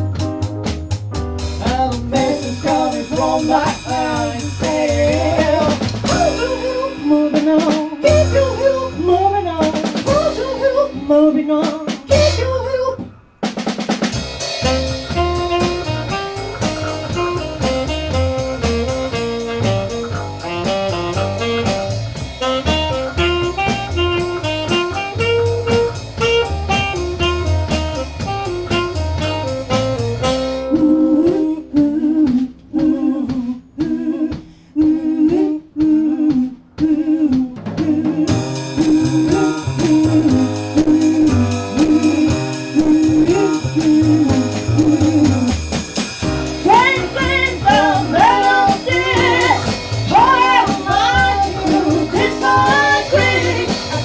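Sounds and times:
live band with piano and drums: 0:00.0 - 0:54.0
person singing: 0:01.6 - 0:13.1, 0:30.7 - 0:45.6, 0:46.6 - 0:54.0.

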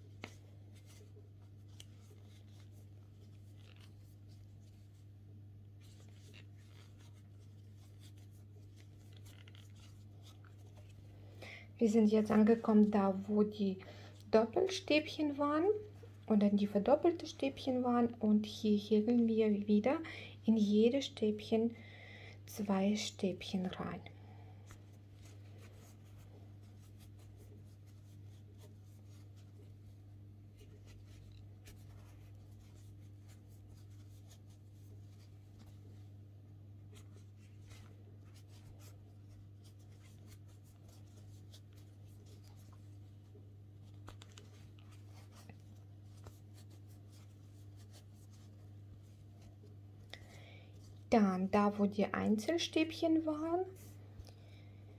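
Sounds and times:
crochet hook scratching yarn: 0:05.8 - 0:10.9, 0:25.2 - 0:36.0, 0:36.9 - 0:49.8.

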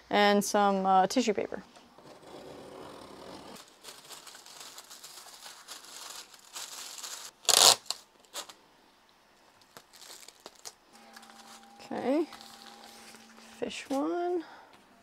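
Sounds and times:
tissue paper rustling and crinkling: 0:03.6 - 0:08.6, 0:09.7 - 0:14.2
loud paper rip: 0:06.9 - 0:08.0.

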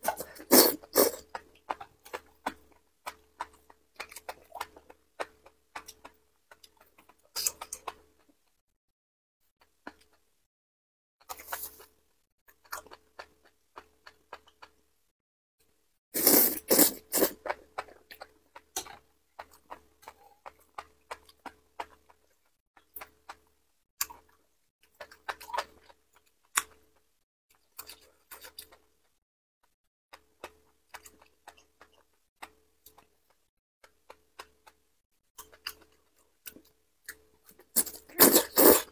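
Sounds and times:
wet mouth clicks chewing: 0:00.1 - 0:08.3, 0:16.2 - 0:23.4
wet chewing clicks: 0:00.1 - 0:08.4, 0:12.5 - 0:14.8, 0:16.2 - 0:29.2, 0:30.1 - 0:34.8, 0:35.4 - 0:38.9
loud slurp of mushroom strands: 0:38.2 - 0:38.9.

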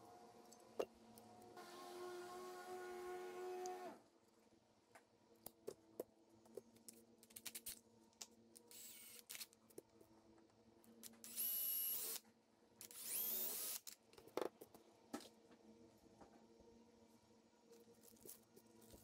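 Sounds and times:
cordless drill whining: 0:11.2 - 0:12.2, 0:12.8 - 0:13.8.

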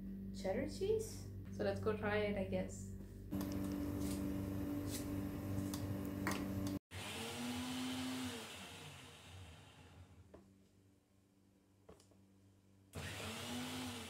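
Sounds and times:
electric mixer grinder running: 0:03.4 - 0:10.2, 0:13.0 - 0:14.0.

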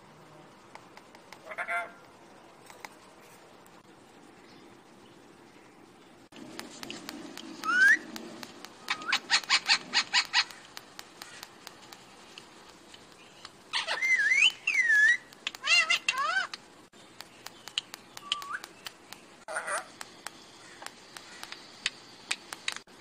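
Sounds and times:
parrot whistling: 0:07.6 - 0:08.0, 0:08.8 - 0:10.5, 0:13.8 - 0:16.5
parrot chirps and calls: 0:07.6 - 0:08.2, 0:08.8 - 0:11.5, 0:13.7 - 0:16.6, 0:19.4 - 0:20.0.

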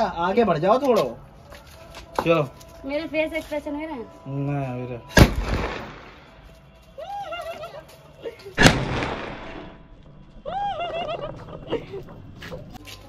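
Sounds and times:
firecracker gun bangs with echo: 0:05.2 - 0:06.4, 0:08.6 - 0:09.8.

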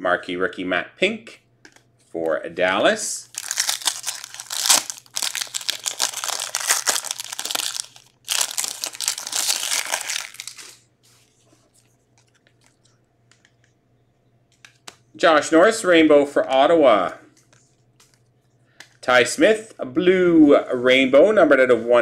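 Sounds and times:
foil wrapper tearing and crinkling: 0:03.3 - 0:10.8.

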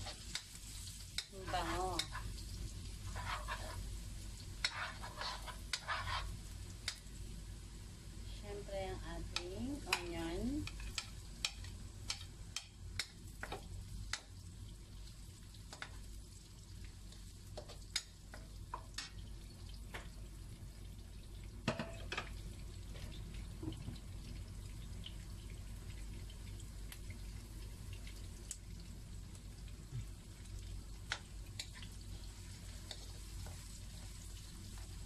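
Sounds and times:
spatula scraping a pan: 0:00.0 - 0:00.4, 0:01.4 - 0:02.4, 0:03.0 - 0:03.9, 0:04.6 - 0:06.4
onions sizzling in a pan: 0:00.0 - 0:35.0.

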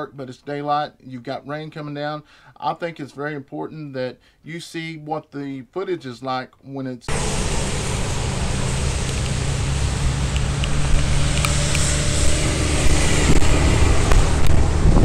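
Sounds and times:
highway traffic rumble: 0:07.1 - 0:15.0
wind and rain on microphone: 0:07.2 - 0:15.0.

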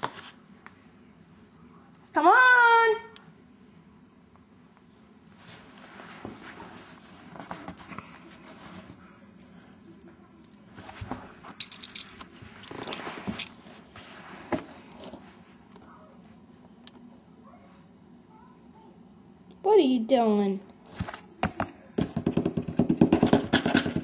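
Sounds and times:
rustling and scraping in cardboard box: 0:05.4 - 0:09.0, 0:12.4 - 0:15.2.

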